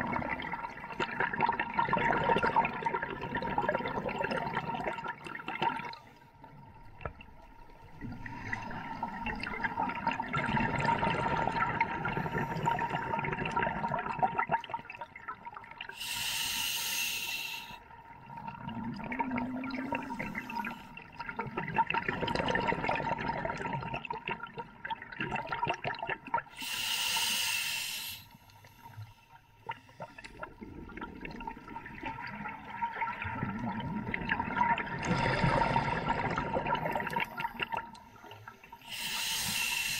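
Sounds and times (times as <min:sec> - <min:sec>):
exhaled bubbles gurgling: 0:00.0 - 0:16.4, 0:17.4 - 0:26.8, 0:28.7 - 0:39.9
regulator hissing inhalation: 0:16.0 - 0:17.8, 0:26.6 - 0:29.2, 0:38.7 - 0:39.9.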